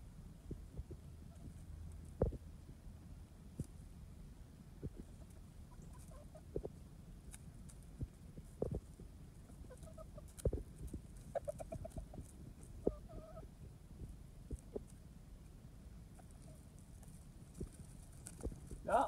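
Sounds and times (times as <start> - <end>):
hens clucking: 4.8 - 6.7, 9.5 - 10.6, 11.2 - 13.6.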